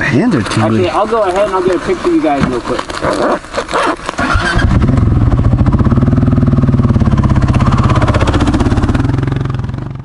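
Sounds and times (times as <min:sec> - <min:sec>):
motorcycle engine running: 0:04.2 - 0:10.0.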